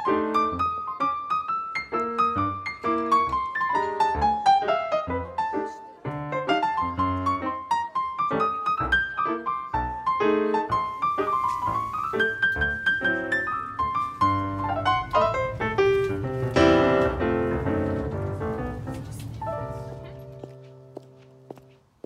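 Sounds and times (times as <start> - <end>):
piano music: 0.0 - 21.9.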